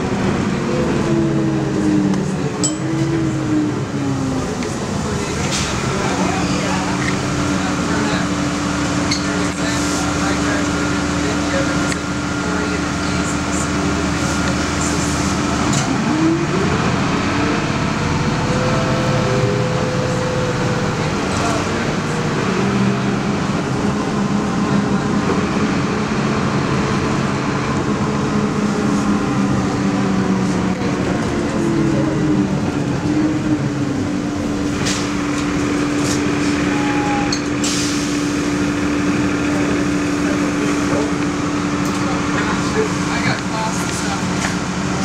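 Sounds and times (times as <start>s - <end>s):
bus diesel engine: 0.0s - 45.0s
road noise: 0.0s - 45.0s.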